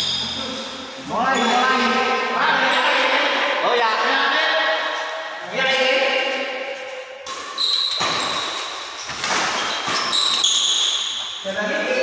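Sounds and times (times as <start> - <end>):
shoe squeaking on court floor: 0.0 - 3.1, 5.8 - 12.0
people talking: 0.1 - 4.8, 5.4 - 6.5, 11.5 - 12.0.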